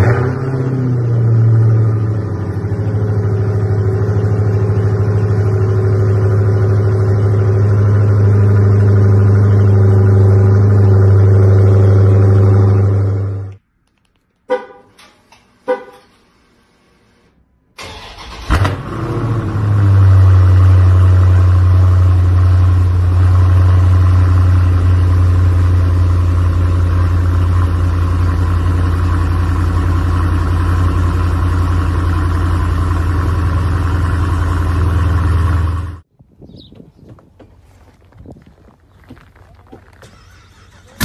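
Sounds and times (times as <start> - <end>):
car engine revving and idling: 0.0 - 13.6, 17.8 - 36.1.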